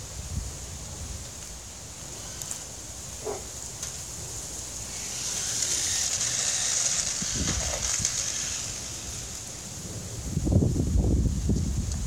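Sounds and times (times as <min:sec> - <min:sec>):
toy car electric motor whine: 0:02.1 - 0:02.7, 0:04.8 - 0:09.6.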